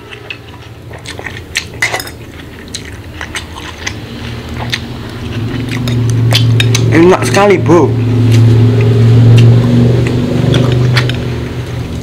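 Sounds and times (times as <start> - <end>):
steady low hum: 0.0 - 12.0
cutlery clinking on glass bowl: 1.8 - 2.2.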